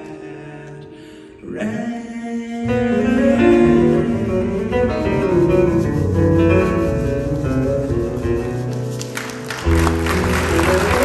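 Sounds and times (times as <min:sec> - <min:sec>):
acoustic guitars playing: 0:02.6 - 0:11.0
applause: 0:08.9 - 0:11.0.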